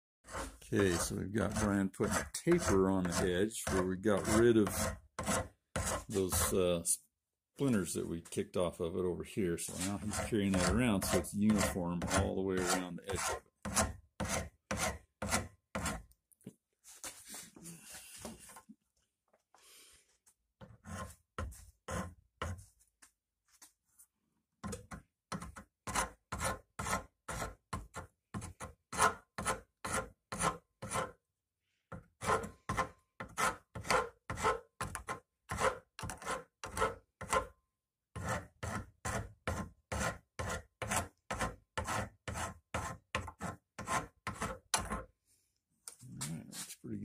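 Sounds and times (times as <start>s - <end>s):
hand file rasping on wood: 0.2s - 6.6s, 9.6s - 16.1s, 20.6s - 22.6s, 25.3s - 31.2s, 32.2s - 37.5s, 38.2s - 45.0s.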